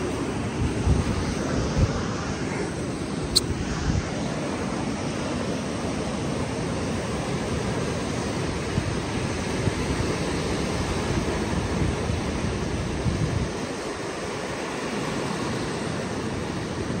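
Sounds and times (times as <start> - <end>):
wind buffeting microphone: 0.0 - 6.0, 6.6 - 14.4
ocean surf breaking: 0.0 - 17.0.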